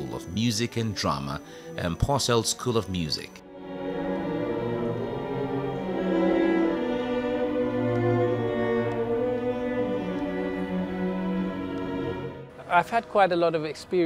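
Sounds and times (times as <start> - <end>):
cello bowed notes: 0.0 - 14.0
violins of string orchestra: 3.4 - 14.0.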